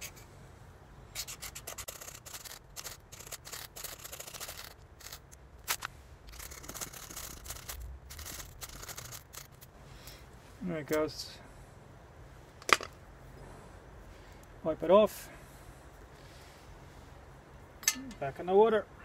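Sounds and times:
ferrocerium rod rasping scrapes: 1.2s - 9.7s.

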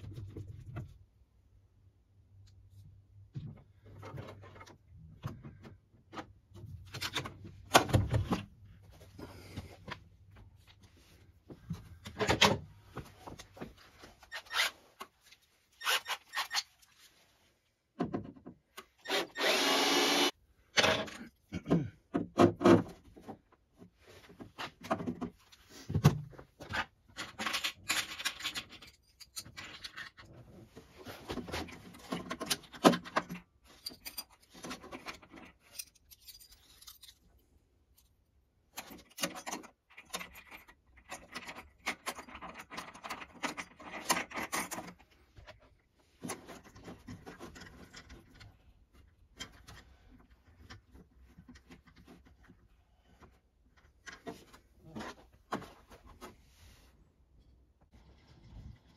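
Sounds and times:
cordless drill drilling: 19.1s - 20.3s
knocks and scrapes of tools: 20.7s - 38.1s, 38.7s - 56.8s.

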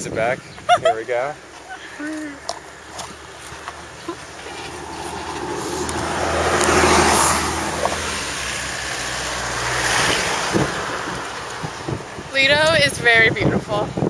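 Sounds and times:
low engine hum: 1.6s - 12.8s
vehicle passing by: 2.8s - 12.3s.

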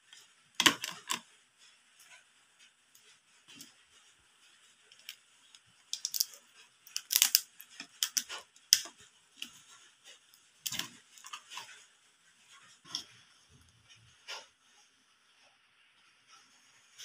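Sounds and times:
crab shell cracking: 5.9s - 8.9s.

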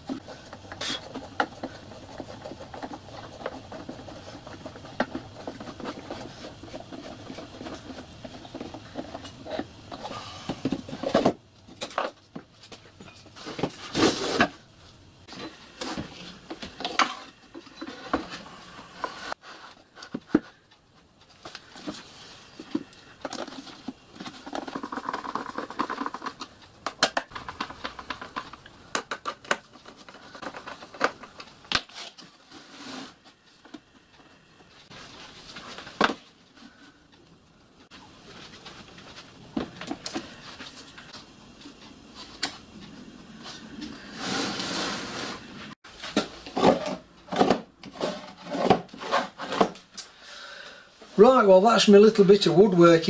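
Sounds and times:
wooden drawers scraping and sliding: 44.0s - 49.8s.

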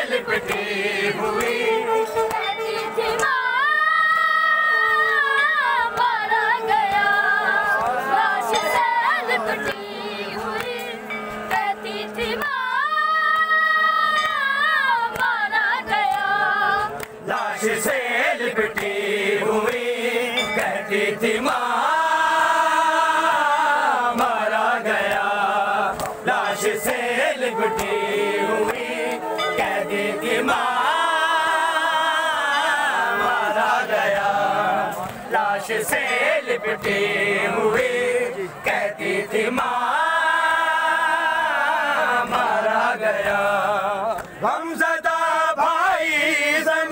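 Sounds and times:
men chanting a lament: 0.0s - 2.5s, 6.0s - 12.4s, 16.4s - 46.9s
hands slapping chests: 25.9s - 26.2s.

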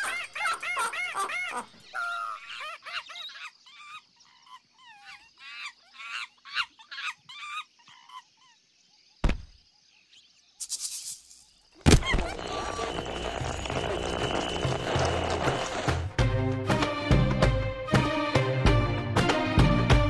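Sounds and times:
cartoon peacock sobbing: 0.0s - 8.3s
loud thump: 9.2s - 9.6s.

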